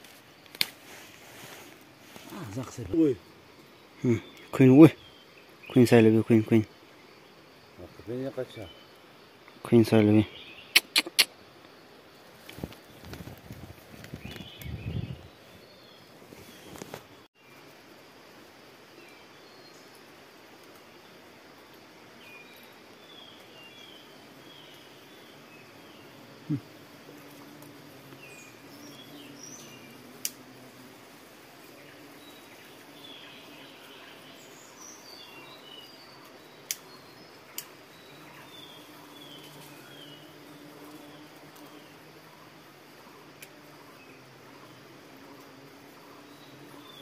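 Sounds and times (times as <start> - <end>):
birds chirping: 0.9 - 11.3, 12.5 - 17.3, 22.2 - 47.0
sharp clicks: 10.7 - 11.3.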